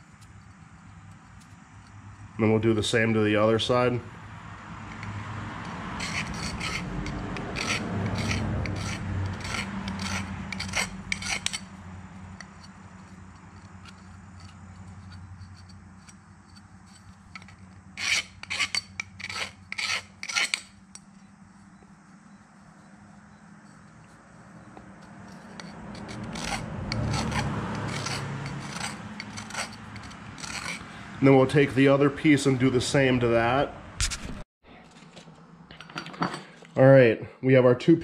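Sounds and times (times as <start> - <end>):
rasp scraping copper pipe: 4.9 - 21.0, 23.6 - 31.0.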